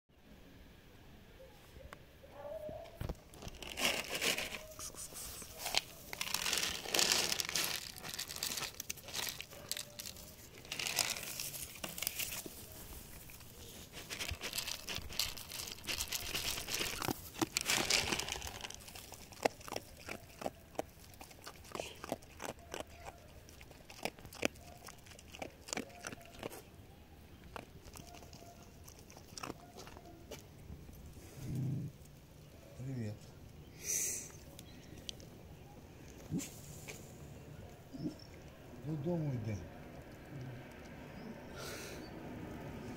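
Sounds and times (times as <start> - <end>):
plastic crinkling and rustling: 3.0 - 20.3
dog crunching kibble: 3.1 - 30.5.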